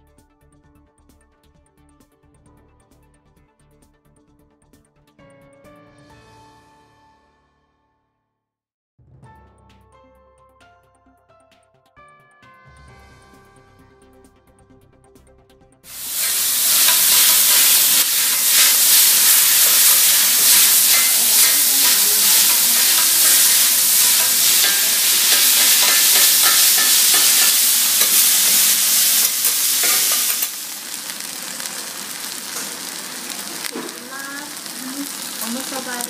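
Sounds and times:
noodles sizzling on griddle: 15.9 - 36.0
metal spatulas scraping griddle: 16.2 - 30.5.

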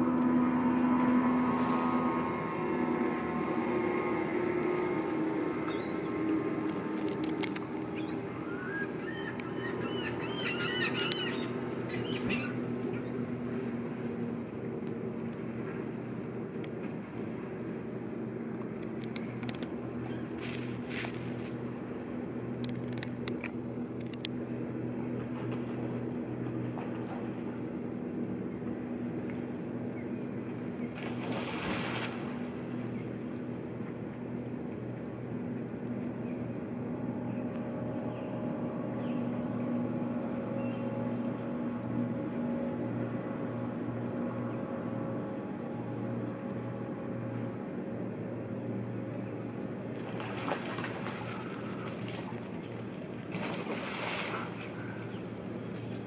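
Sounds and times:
low machine hum: 0.0 - 56.0
pelican wings splashing on water: 30.9 - 32.5, 50.0 - 55.2.

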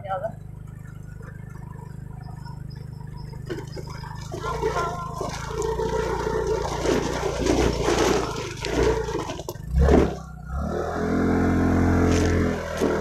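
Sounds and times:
motorcycle engine running: 0.0 - 13.0
rattle: 0.4 - 10.6.

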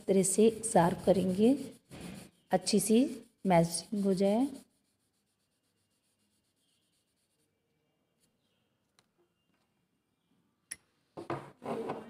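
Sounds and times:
paper rubbing: 0.0 - 7.5.

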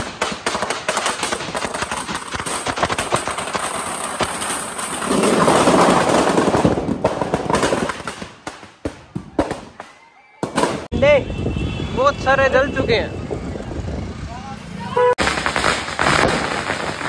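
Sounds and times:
firecrackers crackling: 0.0 - 10.9, 15.2 - 17.0.

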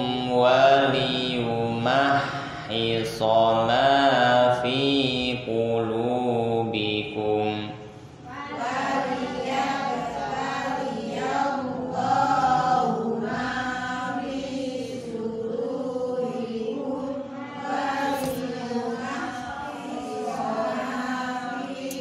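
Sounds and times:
voices chanting in unison: 0.0 - 22.0.

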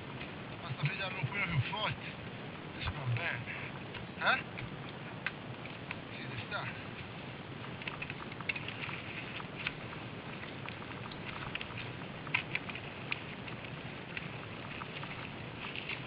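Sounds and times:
low rustling hiss: 0.0 - 16.0
bikes crunching over rocky trail: 0.1 - 16.0.

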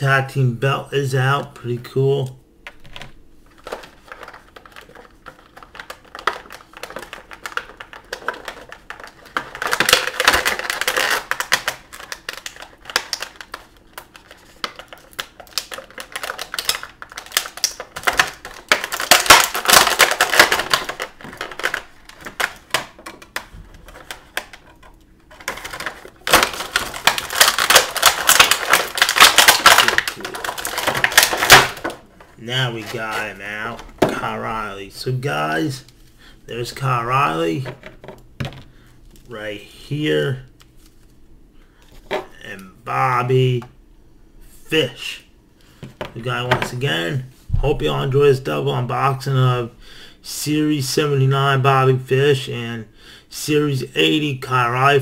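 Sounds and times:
plastic packaging crackling: 2.6 - 34.8.

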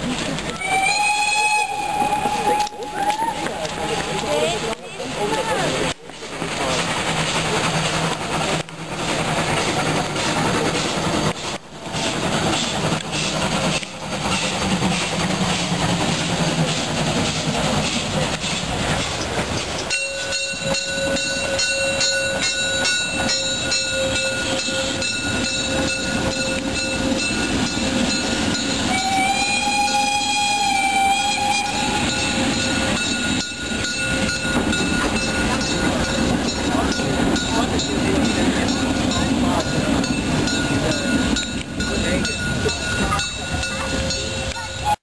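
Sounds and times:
steam whistle: 0.5 - 3.8, 28.7 - 32.8
wheels clicking over rail joints: 1.9 - 44.9.

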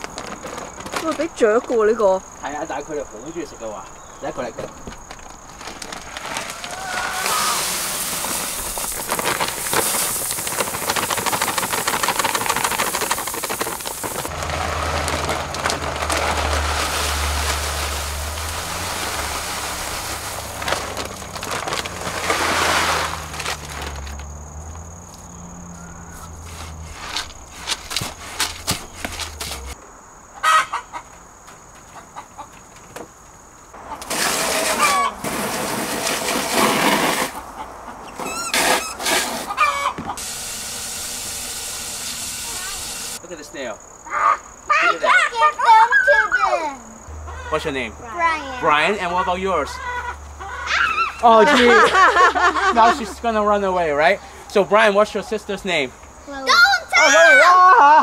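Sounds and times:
grain pouring into plastic bucket: 5.6 - 24.0
water rushing from hose: 6.2 - 24.0, 34.1 - 37.4, 40.2 - 43.2
chickens clucking: 30.4 - 32.8, 33.8 - 35.2, 37.3 - 40.2, 47.1 - 47.9, 48.6 - 53.1.

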